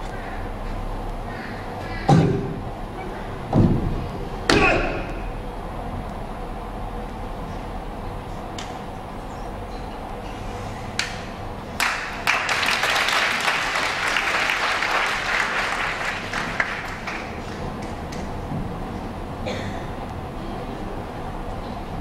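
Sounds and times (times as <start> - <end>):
audience applauding: 11.8 - 18.3.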